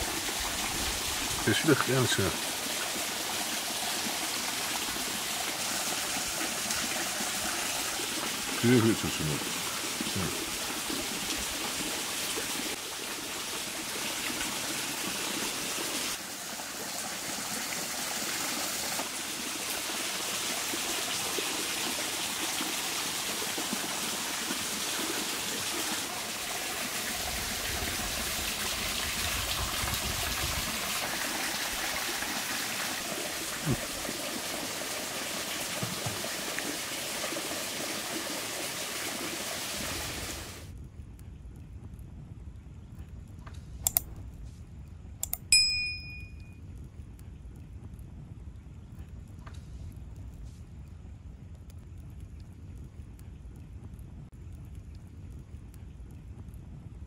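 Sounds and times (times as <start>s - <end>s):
stream flowing: 0.0s - 40.7s
low rumble: 40.7s - 45.2s, 46.6s - 57.0s.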